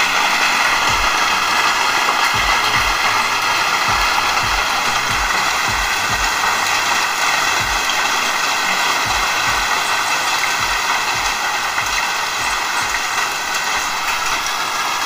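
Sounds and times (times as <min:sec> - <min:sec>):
heavy rain pouring: 0:00.0 - 0:15.0
low thumps: 0:00.9 - 0:01.2, 0:02.4 - 0:06.4.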